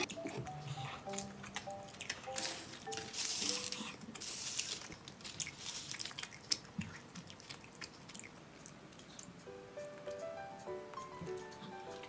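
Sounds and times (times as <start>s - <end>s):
wet chewing mouth sounds: 0.0s - 9.5s.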